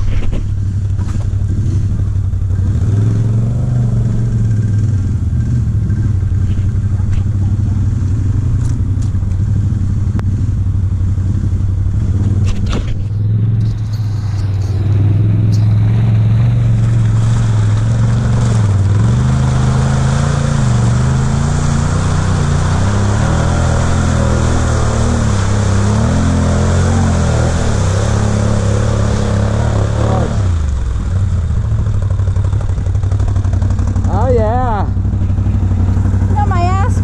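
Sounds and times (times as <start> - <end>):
atv engine revving: 0.0 - 37.0.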